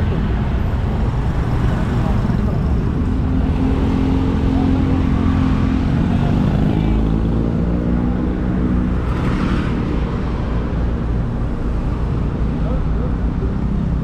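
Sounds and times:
vehicle engine and road rumble: 0.0 - 14.0.

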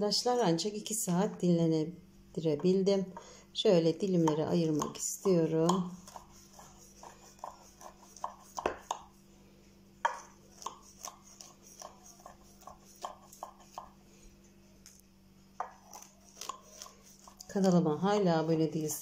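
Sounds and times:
knife cutting crisp pastry: 4.3 - 9.1, 10.1 - 14.0, 15.6 - 18.2.

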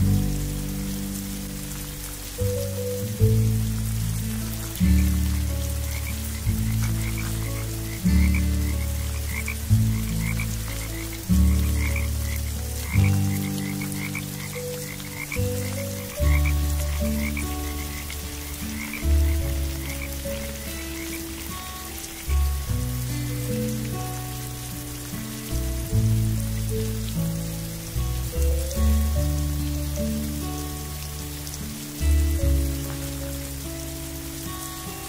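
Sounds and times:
soft music of low held notes: 0.0 - 35.0
frogs croaking: 4.2 - 25.6.

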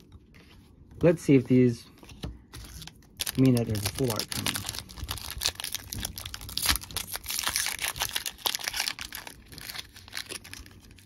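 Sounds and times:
foil pack tearing and crinkling: 2.6 - 11.0.

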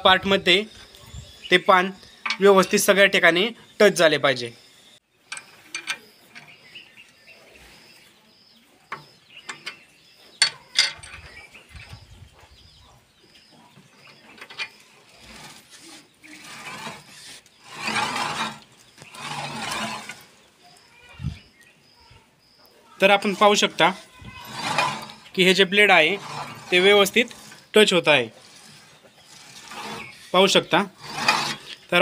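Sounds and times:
spanner clinking on metal: 5.3 - 6.6, 10.4 - 11.4
blade scraping past metal plate: 14.6 - 20.3, 23.3 - 31.8.

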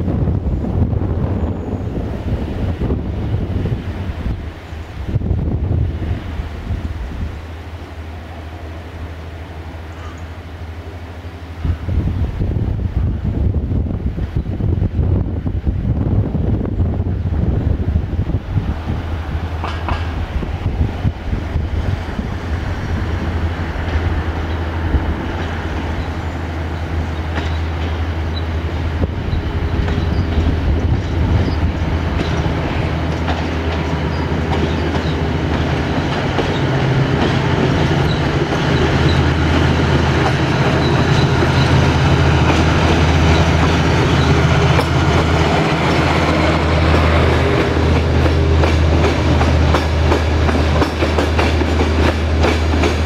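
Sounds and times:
locomotive engine drone: 0.0 - 53.0
train wheels clattering over rails: 19.4 - 21.1, 21.9 - 53.0.

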